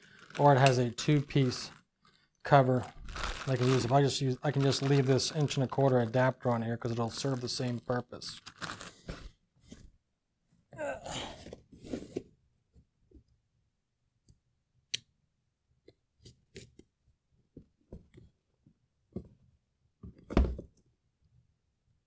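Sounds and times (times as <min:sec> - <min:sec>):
packaging box being handled: 0:03.0 - 0:06.2, 0:08.4 - 0:09.8.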